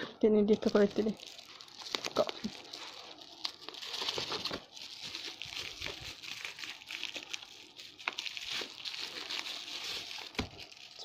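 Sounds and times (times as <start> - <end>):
bubble wrap crinkling: 0.4 - 11.0.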